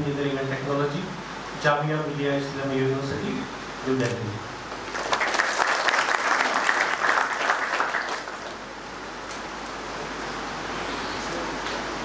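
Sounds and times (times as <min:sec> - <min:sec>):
audience clapping: 0:04.7 - 0:08.7.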